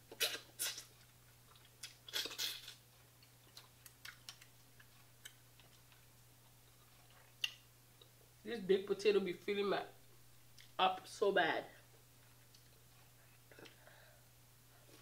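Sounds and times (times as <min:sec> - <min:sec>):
chewing and biting: 0:00.1 - 0:08.1.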